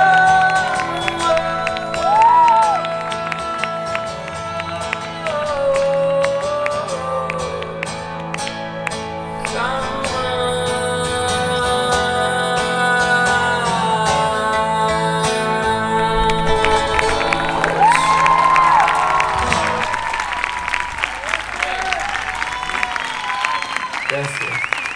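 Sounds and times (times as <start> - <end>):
man singing wordless notes: 0.0 - 8.3, 9.2 - 19.8
acoustic guitar picking: 0.0 - 23.0.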